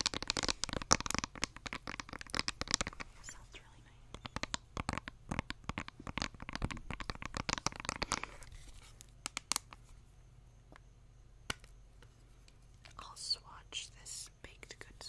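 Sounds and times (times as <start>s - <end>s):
fingernails tapping on makeup compact: 4.1s - 8.4s.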